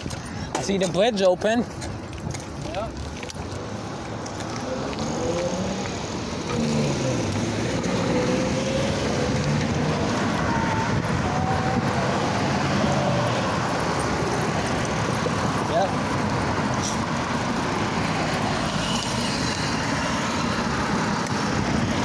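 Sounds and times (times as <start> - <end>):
cars passing: 0.0 - 22.0
riding noise rush: 6.1 - 18.8.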